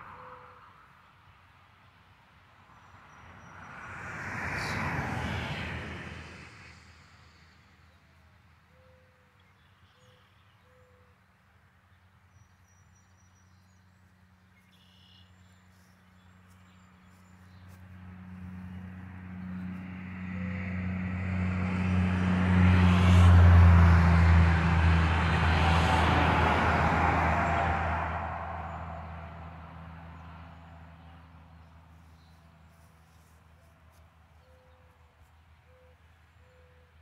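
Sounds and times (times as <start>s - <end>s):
truck diesel engine drone: 18.0s - 31.6s.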